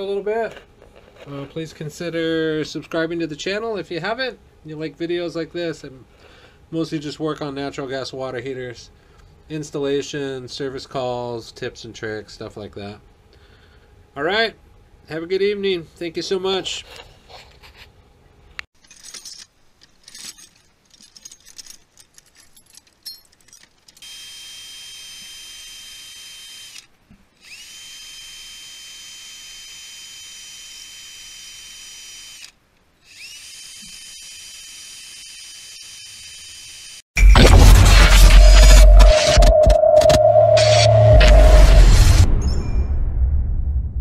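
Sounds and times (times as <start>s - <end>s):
clicking and handling noise: 18.6s - 24.0s
cordless drill whining: 26.2s - 37.0s
loud music: 37.2s - 42.3s.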